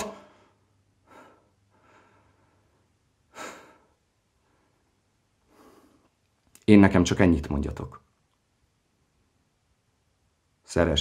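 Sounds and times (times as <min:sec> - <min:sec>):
man breathing noisily: 0:00.2 - 0:06.2.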